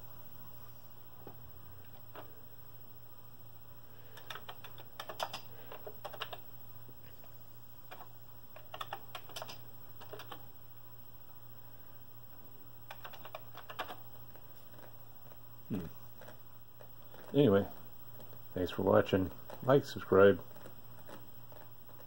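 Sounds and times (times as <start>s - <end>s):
low steady hum: 0.0s - 22.0s
keyboard keys clicking: 4.2s - 6.4s, 7.9s - 10.4s, 12.9s - 14.1s.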